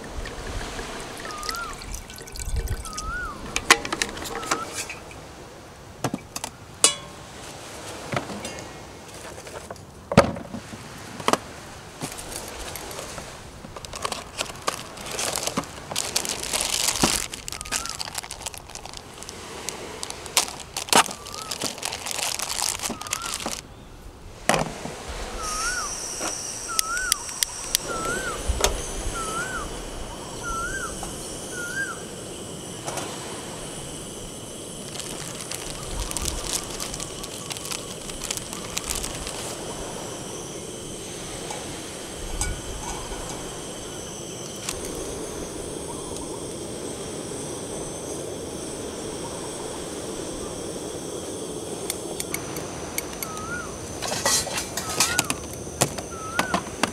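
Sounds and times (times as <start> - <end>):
bird chirping: 1.2 - 2.2, 2.8 - 5.1, 17.4 - 18.2, 21.1 - 21.8, 22.9 - 24.0
plastic bag crinkling: 12.0 - 23.6, 34.6 - 40.4, 44.4 - 45.0.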